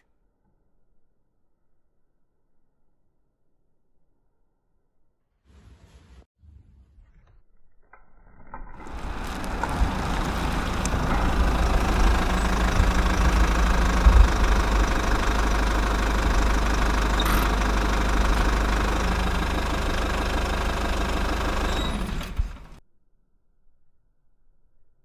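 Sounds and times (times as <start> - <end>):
engine rumbling steadily: 8.7 - 22.8.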